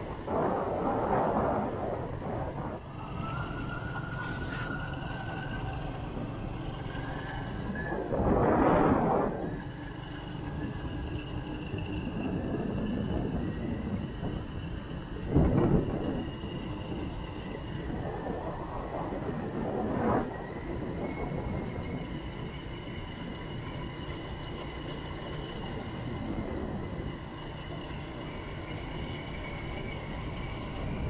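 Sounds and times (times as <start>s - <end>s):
motorcycle engine: 0.0s - 19.7s
wind noise: 0.0s - 24.5s, 25.6s - 27.4s.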